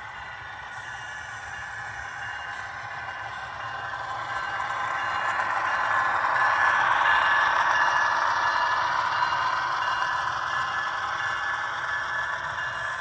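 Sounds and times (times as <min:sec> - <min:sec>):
model train wheels rattling on track: 0:00.0 - 0:13.0.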